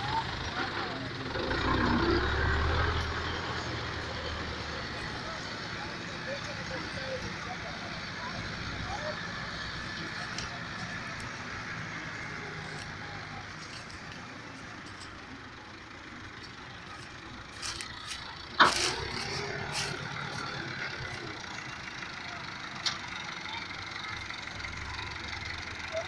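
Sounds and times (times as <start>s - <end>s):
tractor diesel engines running: 0.0s - 26.0s.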